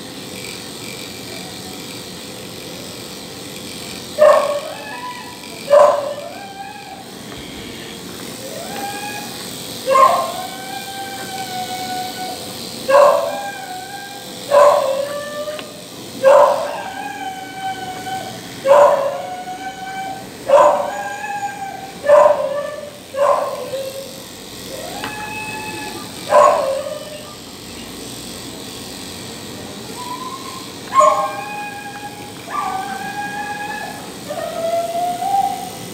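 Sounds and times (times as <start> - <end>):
small dog yelping: 4.2 - 7.1, 8.4 - 27.4, 30.0 - 35.8.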